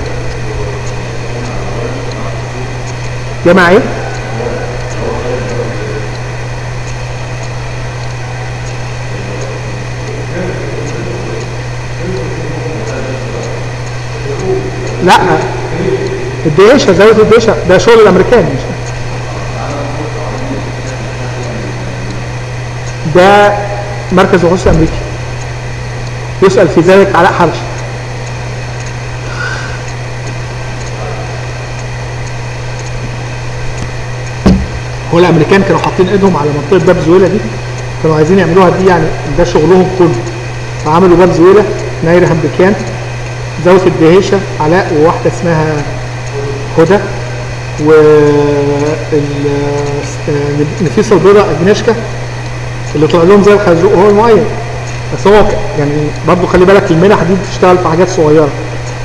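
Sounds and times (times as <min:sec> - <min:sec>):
faint murmured voices: 0:00.0 - 0:16.4, 0:18.6 - 0:22.9, 0:27.7 - 0:35.4
low hum and room noise: 0:00.0 - 0:59.0.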